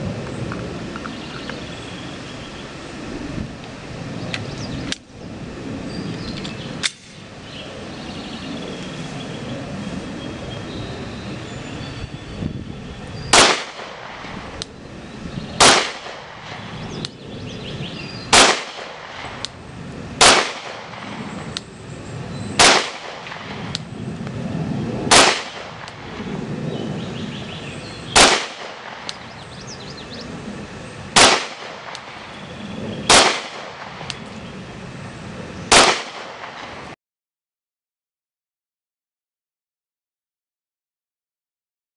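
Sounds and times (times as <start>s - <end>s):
pistol shots: 13.3s - 14.3s, 15.6s - 16.7s, 18.3s - 19.4s, 20.2s - 21.2s, 22.6s - 23.7s, 25.1s - 26.1s, 28.2s - 29.2s, 31.2s - 32.3s, 33.1s - 34.1s, 35.7s - 36.8s.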